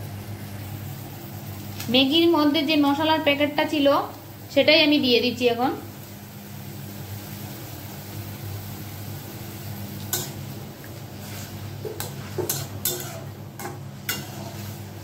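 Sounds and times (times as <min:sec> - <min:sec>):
metal spatula clinking on pan: 0:11.9 - 0:14.4.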